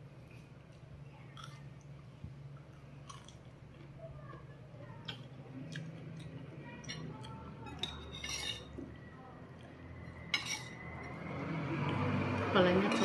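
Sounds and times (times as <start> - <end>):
cutlery clinking on ceramic bowls: 6.8 - 8.8, 10.1 - 11.2.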